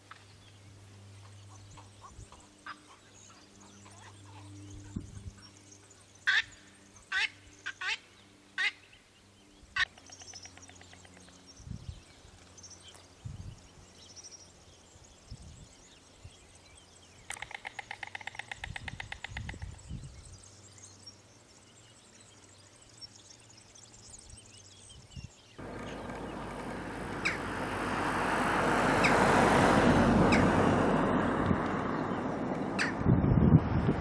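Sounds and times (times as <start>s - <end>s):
storks bill-clattering: 25.6s - 28.0s.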